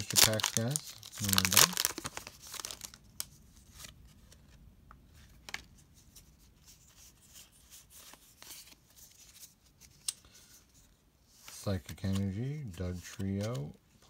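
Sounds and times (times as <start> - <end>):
foil wrapper crinkling: 0.0 - 3.0
cards clicking and rustling: 0.0 - 4.5, 11.4 - 13.7.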